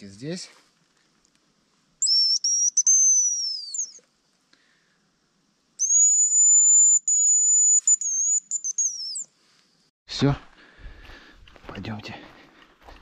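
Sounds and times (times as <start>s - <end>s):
decoy whistle calls: 2.0s - 4.0s, 5.8s - 9.3s.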